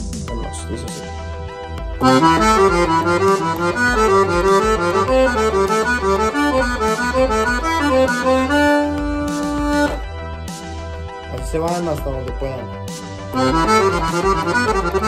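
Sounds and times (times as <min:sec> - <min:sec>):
accordion playing fast runs: 0:02.0 - 0:10.0, 0:13.3 - 0:15.0.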